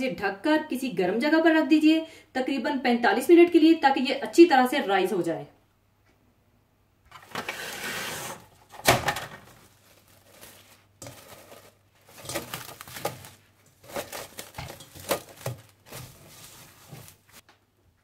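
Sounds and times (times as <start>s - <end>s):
plastic crinkling and rustling: 7.2s - 17.5s.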